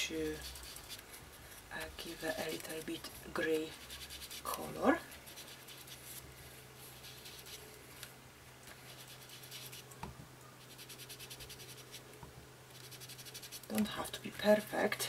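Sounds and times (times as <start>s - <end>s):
ink sponge dabbing on paper: 0.0s - 6.2s, 6.8s - 7.6s, 8.7s - 9.9s, 10.6s - 12.0s, 12.7s - 14.1s.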